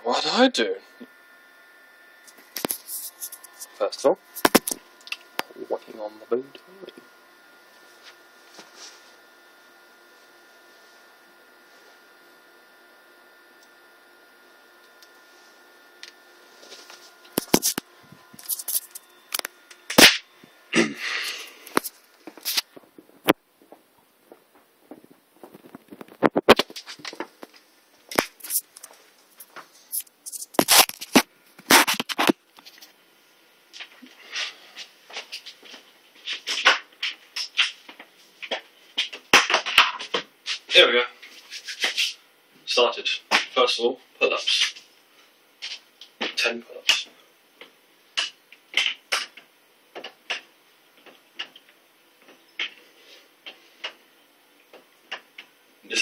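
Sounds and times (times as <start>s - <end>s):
phone handling clicks and scrapes: 2.2s - 5.6s, 16.0s - 20.2s, 21.6s - 23.4s, 25.5s - 33.0s.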